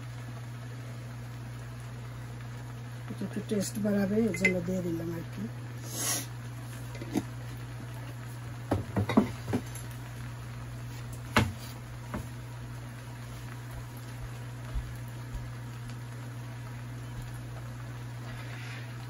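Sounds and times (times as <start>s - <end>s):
steady low hum: 0.0s - 19.0s
kitchen things knocking and clicking: 8.7s - 9.7s.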